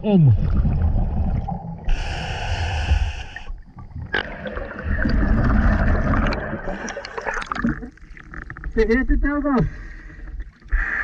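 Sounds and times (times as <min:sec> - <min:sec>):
exhaled bubbles rushing: 0:00.3 - 0:02.2, 0:03.6 - 0:08.6
regulator hissing inhale: 0:01.9 - 0:03.6.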